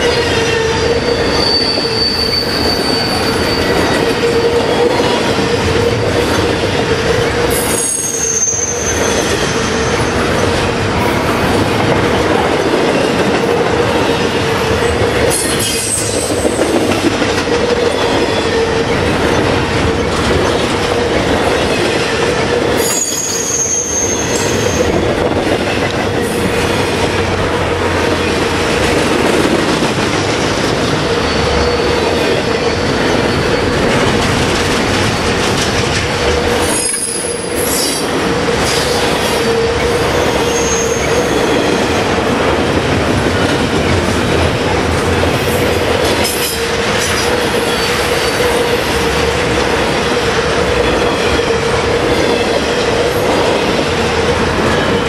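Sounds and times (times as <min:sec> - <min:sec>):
high-pitched wheel squeals: 0:00.0 - 0:10.3, 0:22.6 - 0:25.1, 0:31.0 - 0:34.0, 0:36.5 - 0:42.1, 0:46.2 - 0:49.3
steel wheels rumbling on rail: 0:00.0 - 0:55.0.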